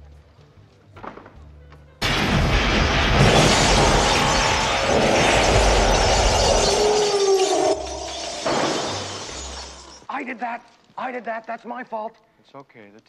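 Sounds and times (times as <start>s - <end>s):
energy beams firing: 2.0s - 9.8s
furniture and glass crashing: 2.0s - 10.1s.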